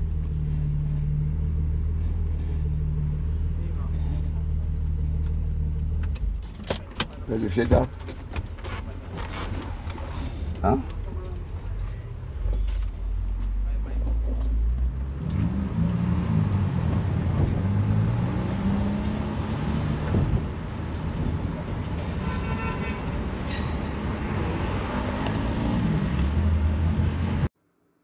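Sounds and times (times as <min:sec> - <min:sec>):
traffic in a car park: 0:00.0 - 0:27.7
car horn toot: 0:22.1 - 0:23.2.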